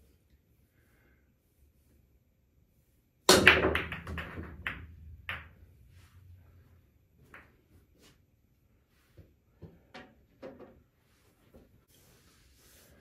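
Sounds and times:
cue ball smashing into rack: 3.3 - 5.6
pool balls clicking: 3.3 - 5.9.

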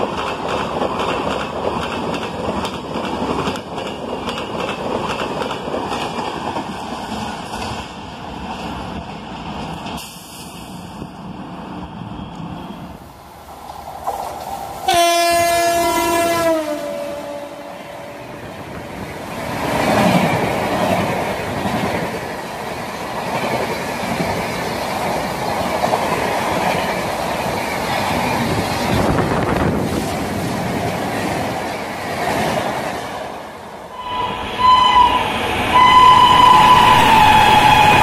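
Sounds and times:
train coaches rushing past: 0.0 - 38.0
train horn blast: 14.8 - 18.2, 33.9 - 38.0.

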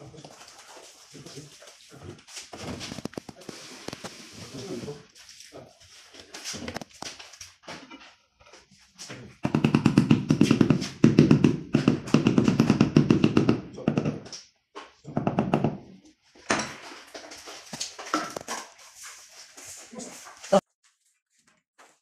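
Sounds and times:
hammer tapping tile: 9.4 - 14.3, 15.1 - 15.8.

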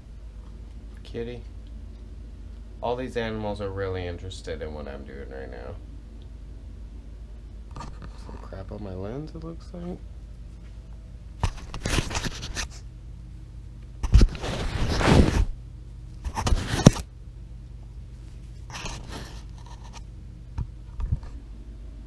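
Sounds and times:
scraping on phone microphone: 7.7 - 8.6, 11.4 - 12.9, 14.0 - 15.6, 16.2 - 17.0, 18.4 - 20.1.

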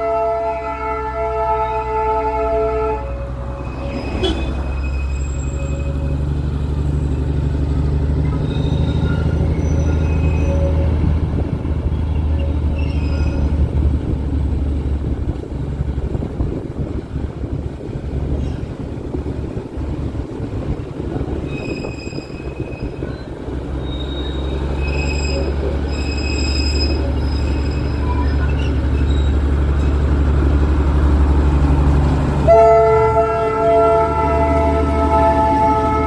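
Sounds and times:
train horn: 0.0 - 4.6, 32.4 - 36.0.

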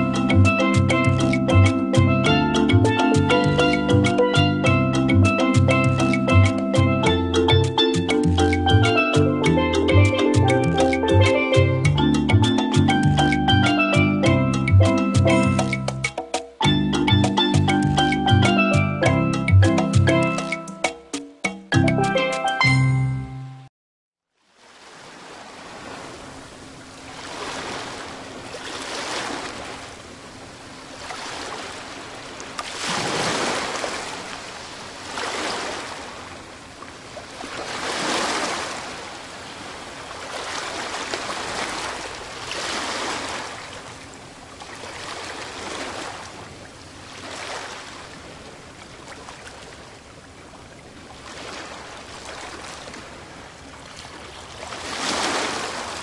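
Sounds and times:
ocean waves washing in: 24.4 - 56.0.

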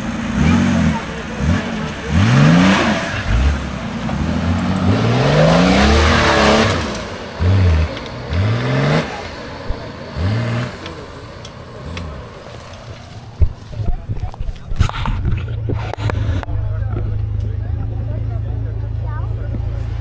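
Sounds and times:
engine revving hard: 0.0 - 13.4.

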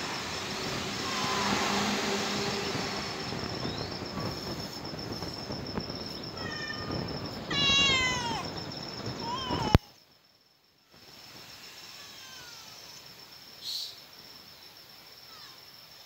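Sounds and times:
high insect-like trill: 0.0 - 16.0
kitten meowing: 7.5 - 8.4.

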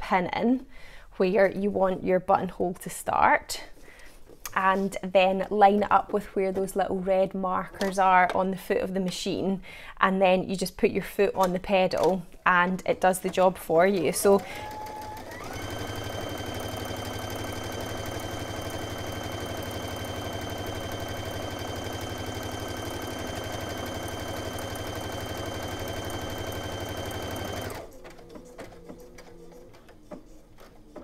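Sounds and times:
sewing machine stitching: 13.2 - 31.0.

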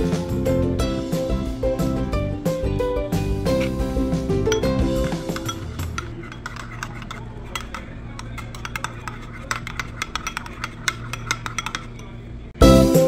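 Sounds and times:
spoon scraping ceramic bowl: 4.5 - 12.4.

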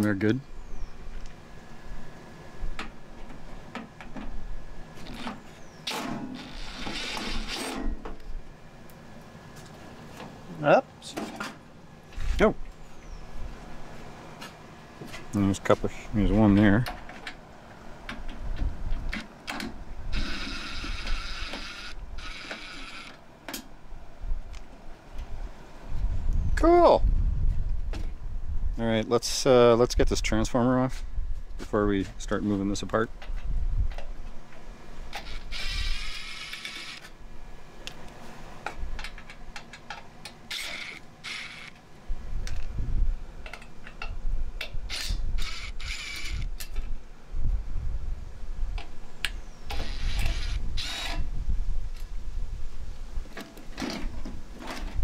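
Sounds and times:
power driver motor whine: 4.9 - 8.6, 20.1 - 23.2, 35.1 - 37.2, 40.5 - 41.8, 44.9 - 46.8, 49.7 - 51.3
clicks of tool and screws: 43.4 - 46.9.

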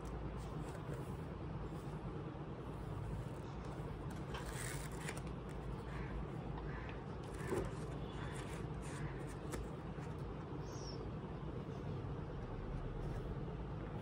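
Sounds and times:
low background hum: 0.0 - 14.0
pages being flipped: 4.0 - 5.7, 7.3 - 10.2.

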